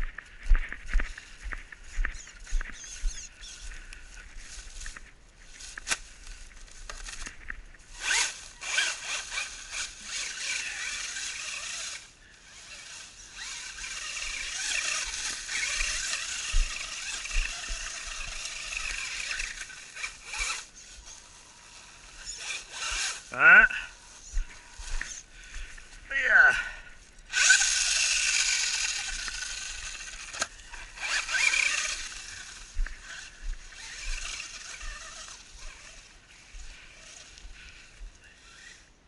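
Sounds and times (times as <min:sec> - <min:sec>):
tyres rustling through dry leaves: 0:00.0 - 0:39.0
electric motor whining: 0:06.8 - 0:25.9, 0:27.2 - 0:38.9.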